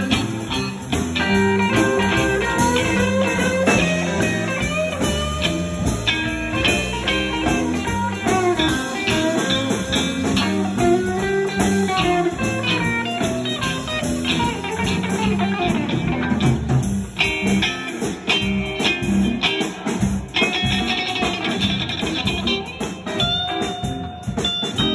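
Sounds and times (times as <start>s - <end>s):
low bass notes: 0.0s - 17.8s
electric guitar blues lead: 0.0s - 24.9s
rhythm guitar: 0.0s - 24.9s.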